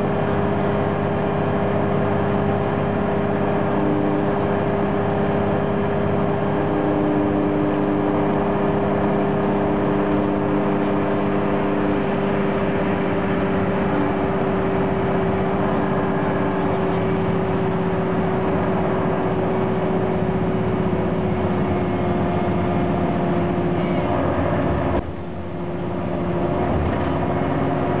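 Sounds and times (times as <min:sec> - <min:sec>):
bus diesel engine running: 0:00.0 - 0:28.0
road noise: 0:00.0 - 0:28.0
transmission whine: 0:00.0 - 0:28.0.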